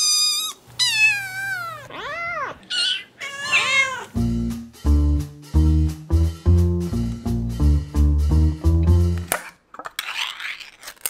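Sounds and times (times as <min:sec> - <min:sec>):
kitten meowing: 0:00.0 - 0:04.2
upbeat music with steady beat: 0:04.2 - 0:09.3.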